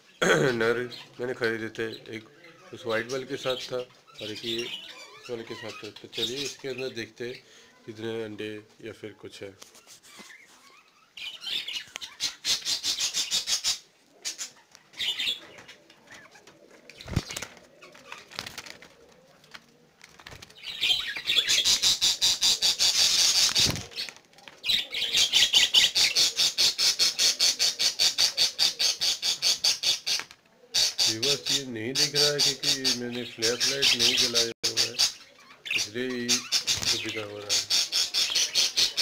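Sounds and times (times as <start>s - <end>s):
budgerigars raspy pulsed calls: 20.8s - 23.7s, 25.0s - 39.0s.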